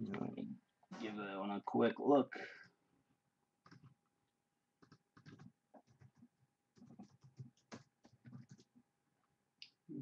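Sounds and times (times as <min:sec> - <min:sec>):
typing on keyboard: 0:03.6 - 0:04.0, 0:04.8 - 0:08.8.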